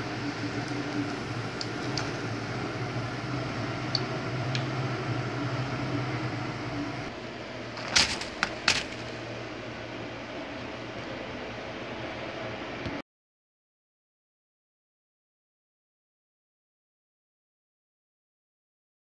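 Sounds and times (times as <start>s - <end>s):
hot oil crackling: 0.0s - 9.5s
frying setup hum and hiss: 0.0s - 13.0s.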